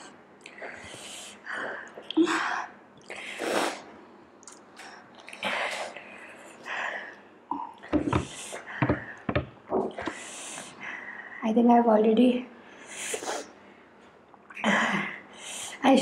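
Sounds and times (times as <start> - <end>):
cup knocking: 7.9 - 9.9.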